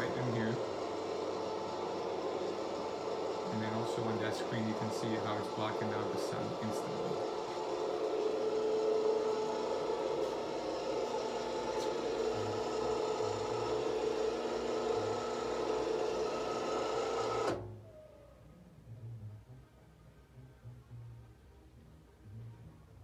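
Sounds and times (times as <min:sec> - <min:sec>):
patio screen motor humming: 0:00.0 - 0:18.1.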